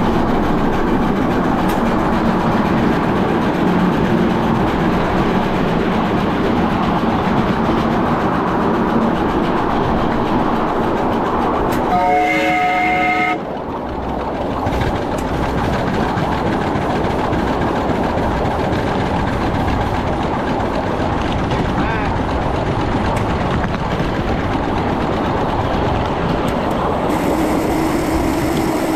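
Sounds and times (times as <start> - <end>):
steam locomotive running: 0.0 - 28.9
steam whistle blast: 11.9 - 13.4, 27.1 - 28.9.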